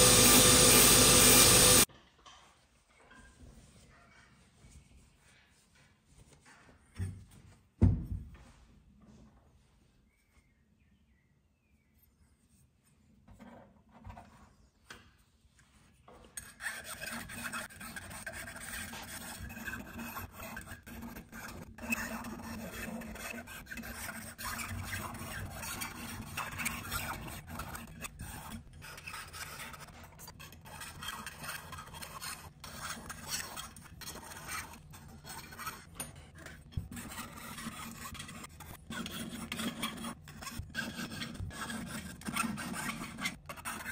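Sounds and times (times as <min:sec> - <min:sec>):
hand file rasping on metal: 0:00.0 - 0:01.9, 0:16.4 - 0:43.9.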